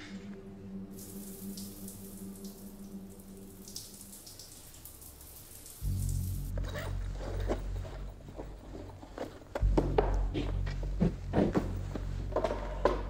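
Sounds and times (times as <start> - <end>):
shower spray hissing: 0.9 - 7.0
deep low sound: 5.8 - 13.0.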